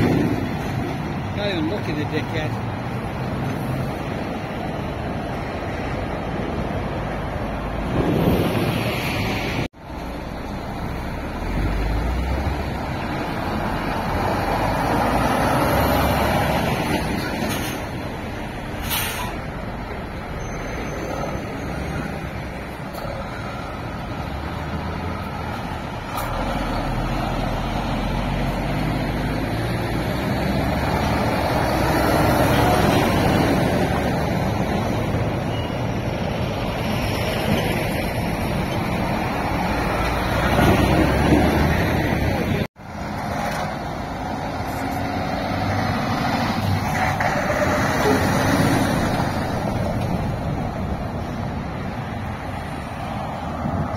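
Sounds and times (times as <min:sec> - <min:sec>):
lorry diesel engines driving past: 0:00.0 - 0:53.9
air brake hisses: 0:18.8 - 0:19.4.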